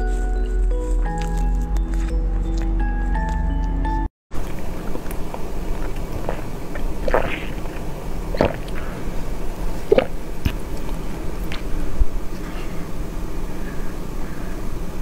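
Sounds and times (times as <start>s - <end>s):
slurping through a straw: 4.4s - 12.5s
steady low hiss: 4.4s - 15.0s.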